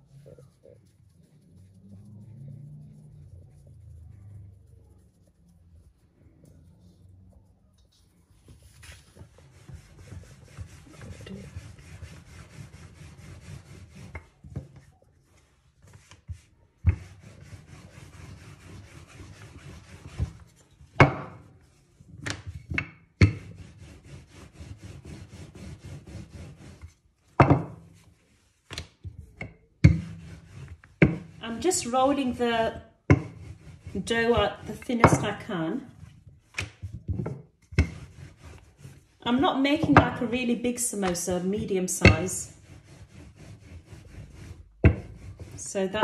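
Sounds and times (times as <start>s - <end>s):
rolling pin rubbing dough: 0.0s - 46.0s.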